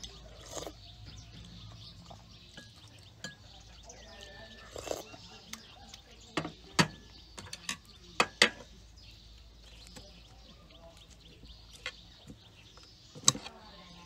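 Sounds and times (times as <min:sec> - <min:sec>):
utensils clinking on ceramic dishes: 0:02.4 - 0:05.2.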